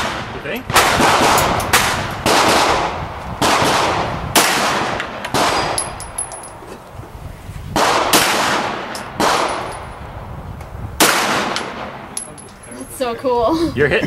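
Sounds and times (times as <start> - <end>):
pistol shots: 0.0 - 5.9, 7.8 - 9.8, 11.0 - 12.0.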